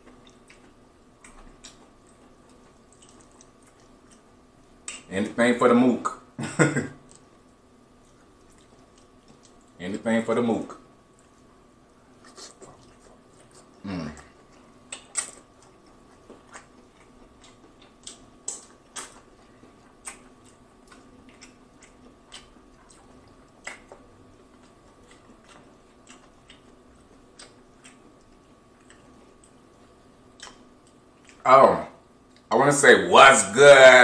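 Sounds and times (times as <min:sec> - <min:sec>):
shrimp shells peeled and chewed: 0:00.0 - 0:05.1, 0:12.2 - 0:31.4.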